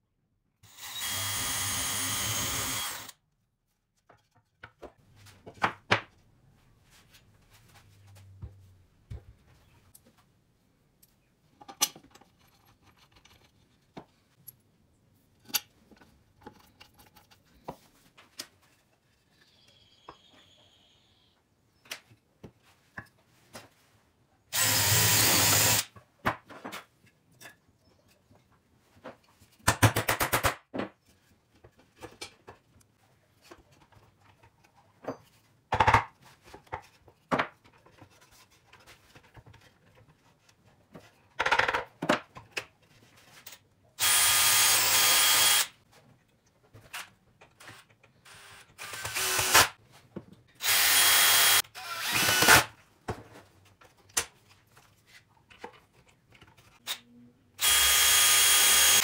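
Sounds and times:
cordless drill boring into wood: 0:00.7 - 0:03.1, 0:24.5 - 0:25.8, 0:44.0 - 0:45.7, 0:47.7 - 0:49.7, 0:50.6 - 0:52.7, 0:57.6 - 0:59.0
knocks and clicks of parts: 0:29.5 - 0:31.0.

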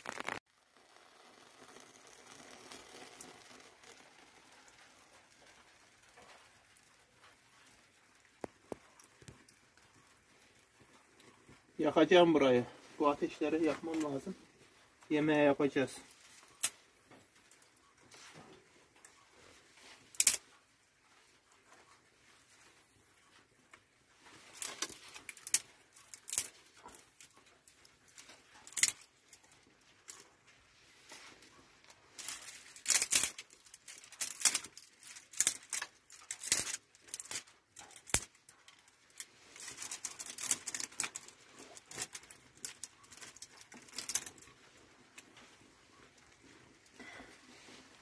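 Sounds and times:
twigs snapping and crackling: 0:00.0 - 0:00.4, 0:08.2 - 0:14.4, 0:15.0 - 0:16.8, 0:19.8 - 0:20.6, 0:23.7 - 0:30.3, 0:32.1 - 0:45.5.

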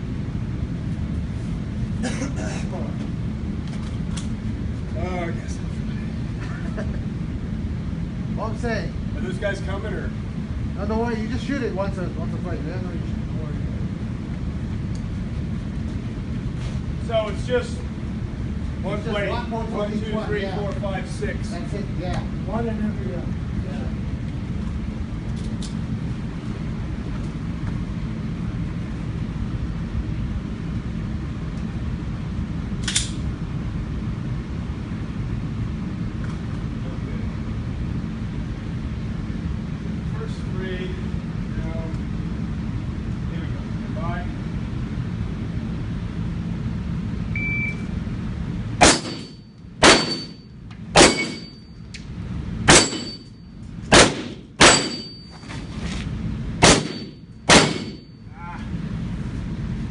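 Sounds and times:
steady low rumble: 0:00.0 - 0:59.9
pistol shot hitting steel plate: 0:48.8 - 0:51.6, 0:52.7 - 0:53.3, 0:53.9 - 0:55.3, 0:56.6 - 0:58.1.

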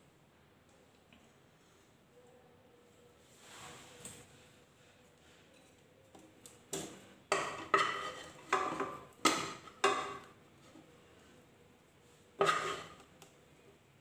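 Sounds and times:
spatula scraping and knocking pan: 0:06.8 - 0:10.8, 0:12.4 - 0:13.1.

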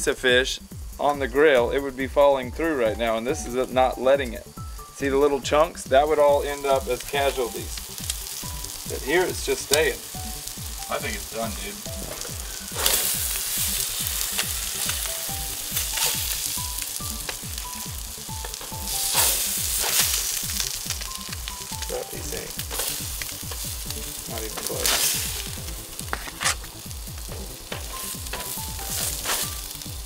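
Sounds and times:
fish sizzling on a grill: 0:00.0 - 0:30.0
spatula scraping grill mat: 0:06.5 - 0:30.0.

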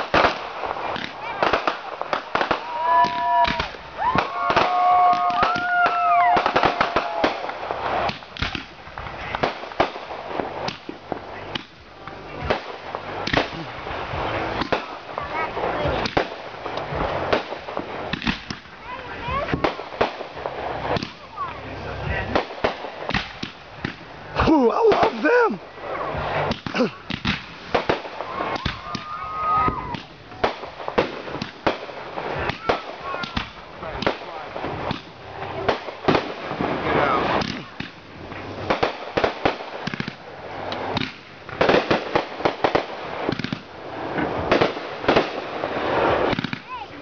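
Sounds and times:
whistling firework: 0:00.0 - 0:11.7, 0:25.9 - 0:47.0
firework shells bursting: 0:00.0 - 0:47.0
fireworks crackle: 0:00.0 - 0:47.0.

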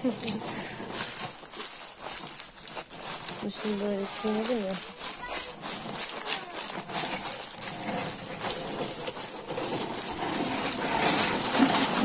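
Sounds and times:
nuts crunching underfoot in sack: 0:00.0 - 0:12.0.

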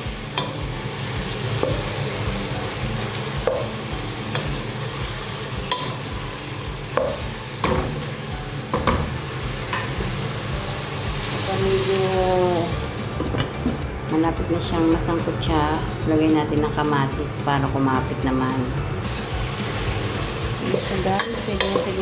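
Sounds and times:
chicken sizzling in oil: 0:00.0 - 0:13.2, 0:19.0 - 0:22.0.

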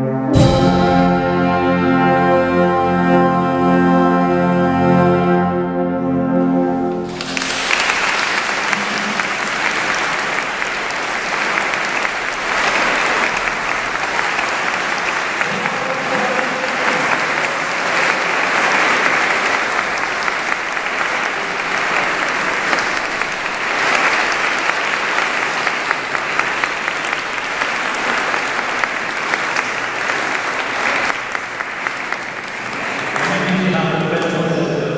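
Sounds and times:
audience applauding: 0:07.0 - 0:34.9.

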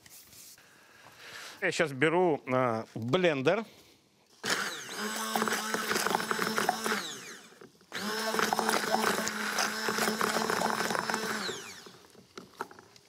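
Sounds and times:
stick blender running: 0:04.3 - 0:12.9.

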